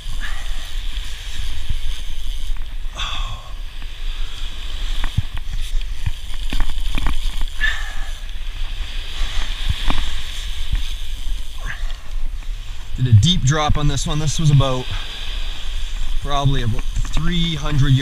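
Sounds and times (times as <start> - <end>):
fishing reel clicking: 0.0 - 3.3, 3.9 - 8.5, 9.2 - 12.2, 16.8 - 18.0
surf washing on beach: 8.1 - 18.0.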